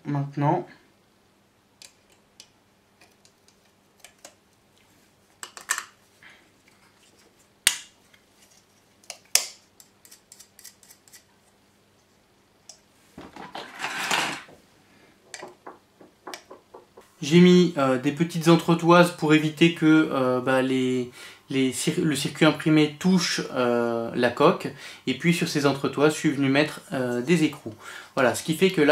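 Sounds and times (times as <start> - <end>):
rattling and rustling: 13.2 - 14.6, 15.3 - 17.2
plastic box clicks and taps: 15.3 - 17.1
sharp knocks: 15.3 - 17.1.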